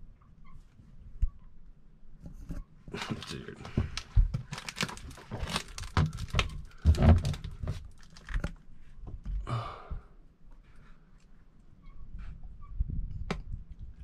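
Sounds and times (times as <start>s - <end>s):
knocks and thumps in wooden cabin: 2.2s - 8.4s.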